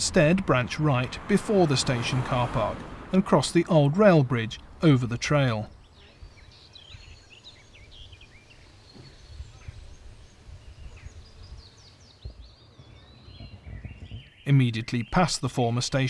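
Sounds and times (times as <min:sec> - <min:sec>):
birds chirping and whistling: 0:05.6 - 0:15.5.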